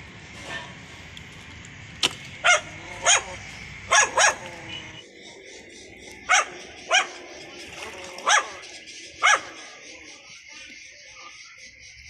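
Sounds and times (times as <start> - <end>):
dog barking: 0.4 - 0.8, 2.4 - 4.9, 6.2 - 7.4, 8.2 - 9.9.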